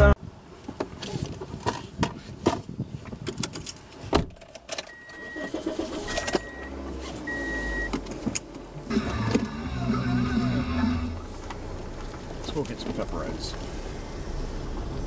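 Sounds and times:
short even beeps: 4.9s - 6.7s, 7.3s - 7.9s
low rumble: 8.9s - 12.4s.

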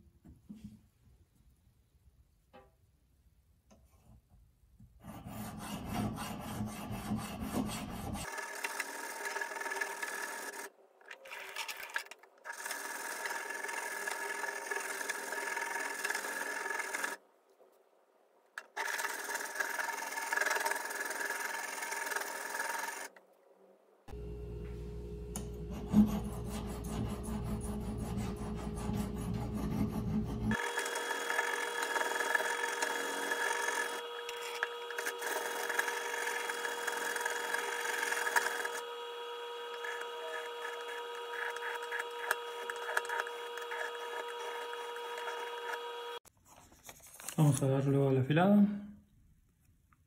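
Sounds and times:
knife scraping on whetstone: 25.6s - 38.8s.

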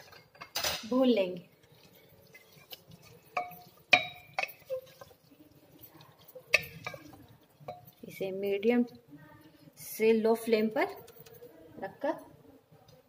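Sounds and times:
wooden spatula clinking on pot: 1.6s - 8.1s
faint scraping in pot: 1.6s - 8.2s.

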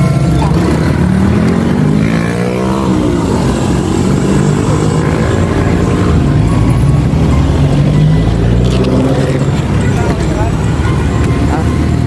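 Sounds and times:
vehicle engine passing: 0.0s - 12.0s.

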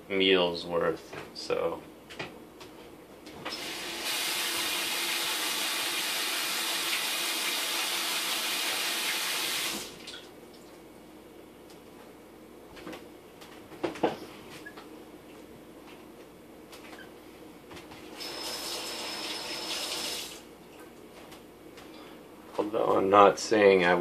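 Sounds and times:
kitchen faucet running: 3.5s - 10.0s, 18.2s - 20.4s.

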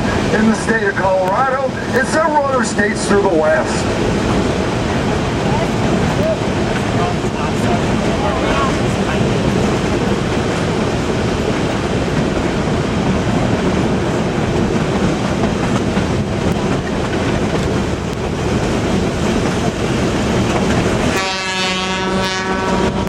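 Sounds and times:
train wheels rumbling and clattering: 0.0s - 23.0s.

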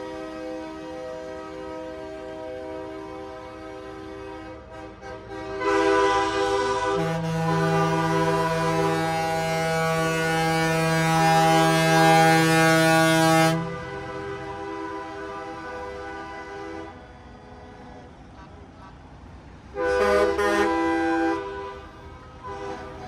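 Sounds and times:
fainter horns: 0.0s - 17.0s
truck air horns blowing chord: 0.0s - 17.8s, 19.7s - 23.0s.

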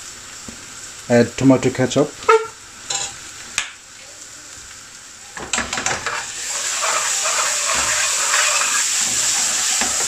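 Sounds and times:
onion sizzling in a pan: 0.0s - 10.0s
metal spoon scraping a pan: 5.5s - 10.0s.

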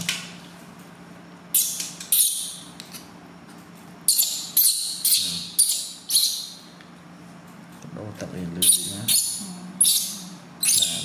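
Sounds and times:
baby monkey crying in squeals: 8.6s - 11.0s.

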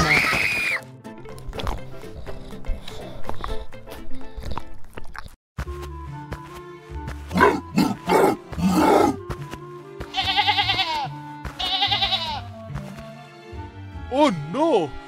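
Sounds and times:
cartoon background music: 0.0s - 15.0s
gruff animal roars: 7.3s - 9.2s
wavering bleat: 10.1s - 12.4s.

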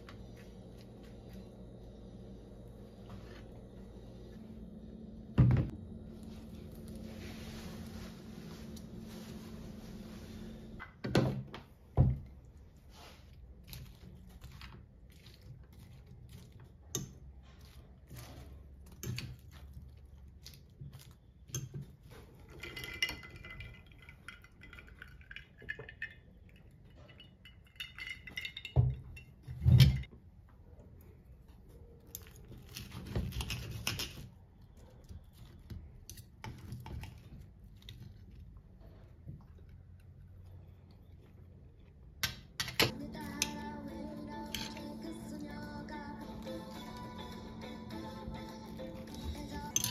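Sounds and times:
ice cubes clinking in glass: 49.6s - 49.9s.

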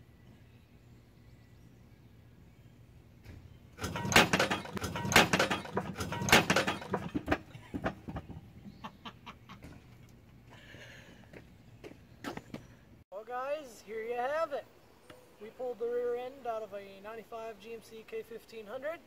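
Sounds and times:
heavy metal clanks and scraping: 3.8s - 8.0s.

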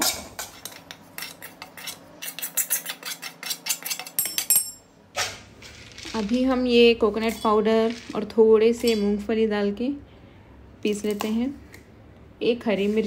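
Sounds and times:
metal spatula scraping a pan: 0.0s - 4.2s.

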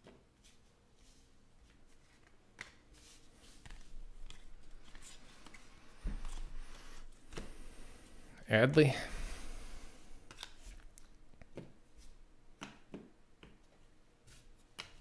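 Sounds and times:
cards sliding and rustling: 0.4s - 8.2s, 9.3s - 12.2s.

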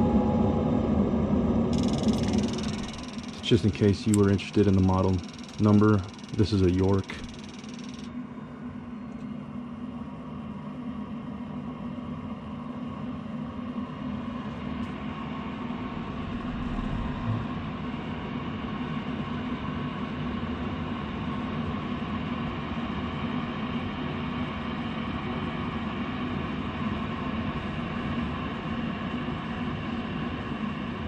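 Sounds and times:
furnace motor humming: 0.0s - 8.1s, 14.4s - 18.2s
low thump: 16.0s - 17.8s.

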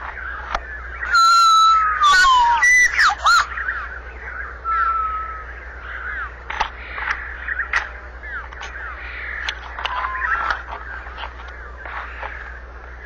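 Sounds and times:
osprey whistled chirps: 0.0s - 6.3s
osprey held whistle: 1.0s - 3.5s.

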